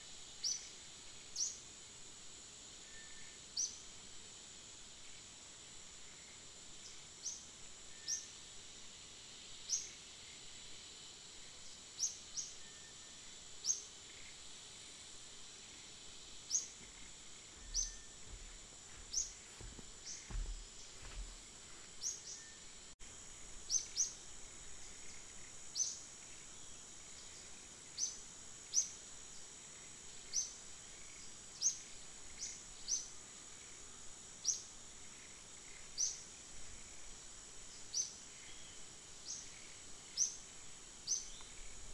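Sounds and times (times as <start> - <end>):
high insect drone: 0.0 - 41.9
small bird chirping: 16.5 - 21.3, 41.0 - 41.9.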